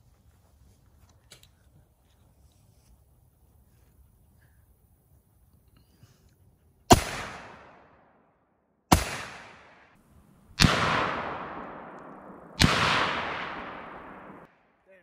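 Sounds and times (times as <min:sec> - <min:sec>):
rifle shots with echo: 0:06.9 - 0:08.2, 0:08.9 - 0:14.8.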